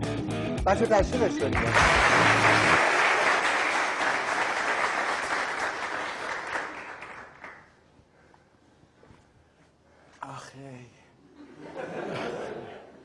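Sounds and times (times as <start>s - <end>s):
audience applauding: 1.0s - 7.8s.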